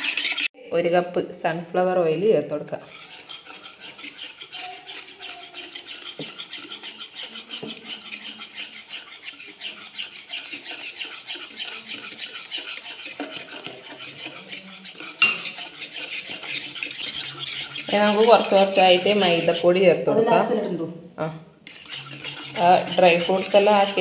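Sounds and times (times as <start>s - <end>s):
whisk beating batter: 0.0s - 0.5s, 2.5s - 20.1s, 21.6s - 24.0s
whisk knocking bowl: 0.0s - 0.5s, 2.7s - 20.2s, 21.7s - 24.0s.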